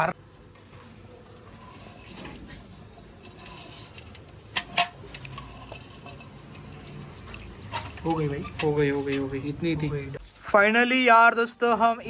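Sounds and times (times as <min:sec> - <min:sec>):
water sloshing in steel bucket: 0:03.1 - 0:10.5.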